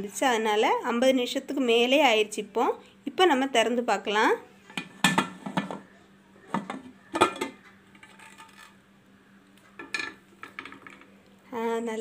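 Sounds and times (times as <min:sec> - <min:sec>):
metal lid clanking: 0:04.7 - 0:05.8, 0:06.5 - 0:08.7, 0:09.8 - 0:11.0.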